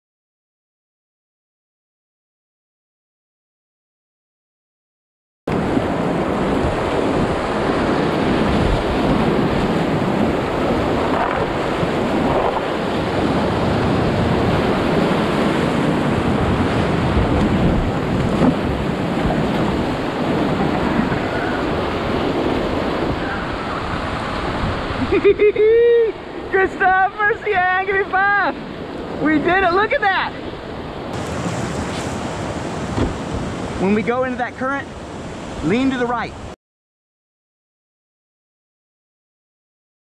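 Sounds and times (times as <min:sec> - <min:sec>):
whitewater rushing and splashing: 0:05.5 - 0:25.2, 0:25.9 - 0:36.3
wind buffeting microphone: 0:05.5 - 0:26.5, 0:28.6 - 0:34.0.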